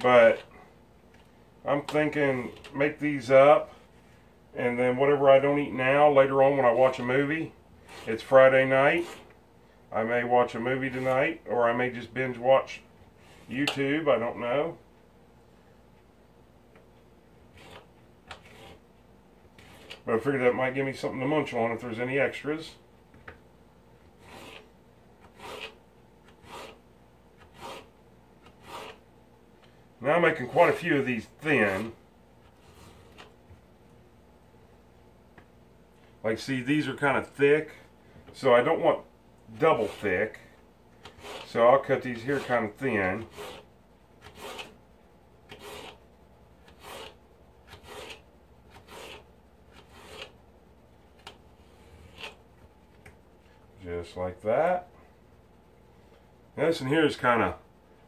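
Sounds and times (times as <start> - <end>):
knife slicing potato on board: 24.2 - 26.8, 27.4 - 29.0, 41.0 - 41.5, 43.2 - 44.8, 45.5 - 46.0, 46.6 - 50.4, 51.2 - 52.4.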